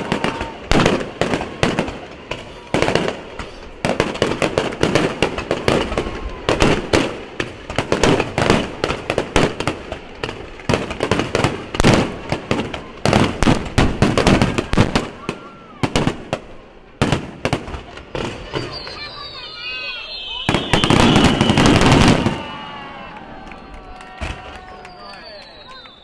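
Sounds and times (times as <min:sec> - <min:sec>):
fireworks bangs: 0:00.0 - 0:26.0
fireworks crackling: 0:00.0 - 0:26.0.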